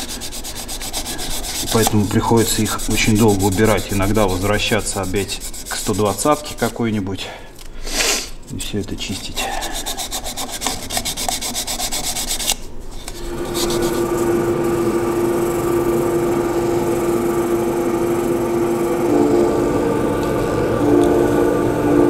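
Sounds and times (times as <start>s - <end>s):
sandpaper on spinning wood bowl: 0.0s - 6.8s, 9.0s - 22.0s
humming tone: 13.1s - 22.0s.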